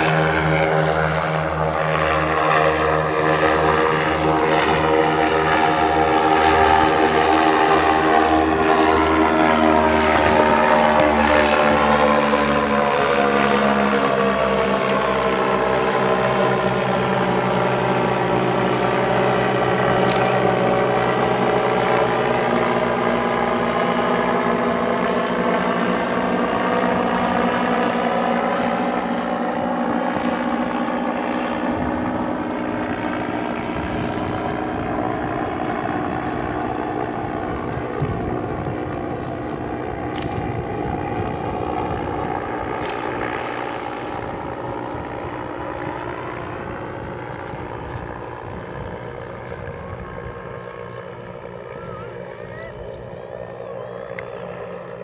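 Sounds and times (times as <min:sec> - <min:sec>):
propeller engines droning: 0:00.0 - 0:55.0.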